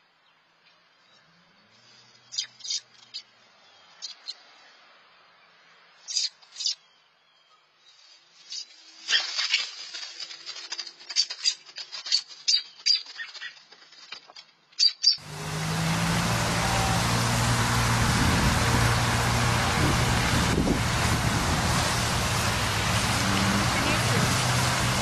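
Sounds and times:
bird chirps: 2.1 - 4.4, 14.8 - 15.2
loud steady hiss: 15.2 - 25.0
low hum: 15.2 - 25.0.

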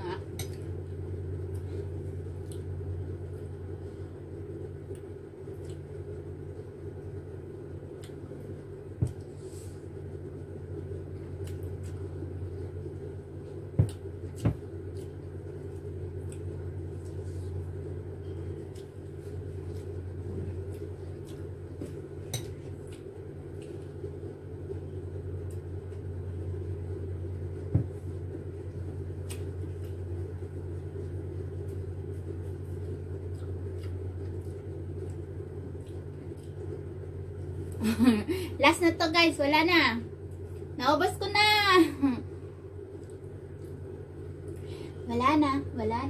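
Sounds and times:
low hum: 0.0 - 46.0
biting and chewing fruit: 31.0 - 37.8.

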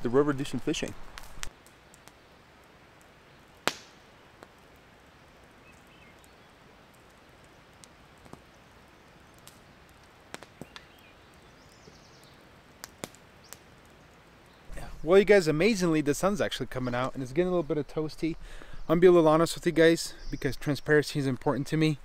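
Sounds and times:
campfire crackling and popping: 0.0 - 22.0.

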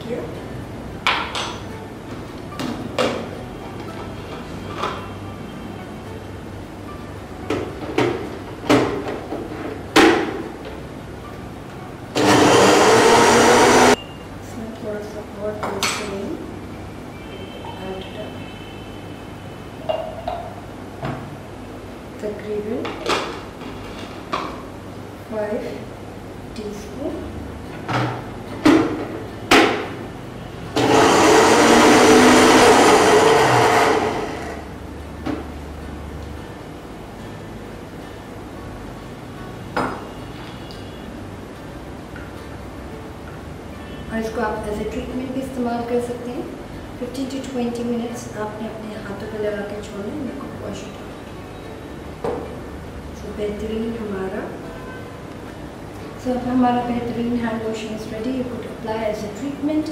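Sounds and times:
blender motor whirring: 12.2 - 14.0, 30.8 - 34.7.

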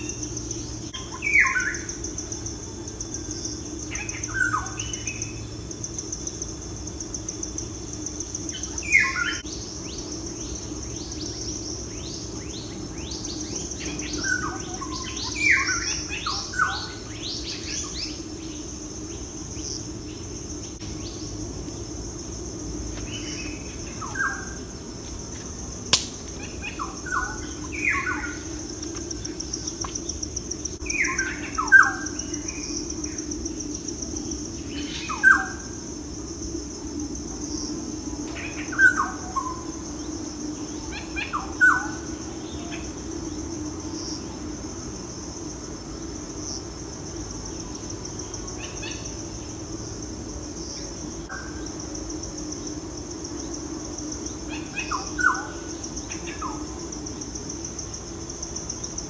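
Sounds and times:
insect chorus: 0.0 - 59.0
sharp click: 25.9 - 26.4.

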